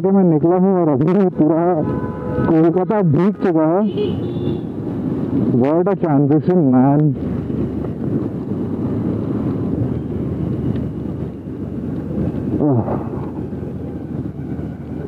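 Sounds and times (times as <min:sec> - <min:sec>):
tyres on wet road: 0:00.0 - 0:15.0
wind buffeting microphone: 0:04.4 - 0:15.0.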